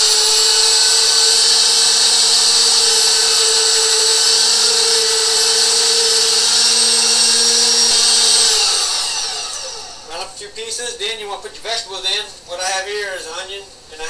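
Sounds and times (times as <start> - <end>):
electric meat grinder whining: 0.0 - 10.2.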